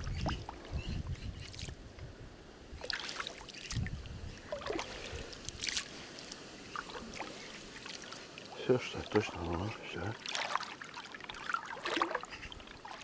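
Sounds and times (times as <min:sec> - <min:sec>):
small splashes and drips: 0:01.4 - 0:01.8, 0:02.8 - 0:13.0
water sloshing around wading person: 0:02.8 - 0:13.0.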